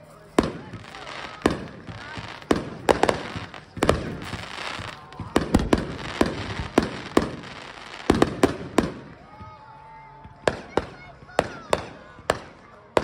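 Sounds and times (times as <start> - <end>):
fireworks crackling hiss: 0.0 - 9.2
fireworks bangs: 0.0 - 9.5, 10.3 - 13.0.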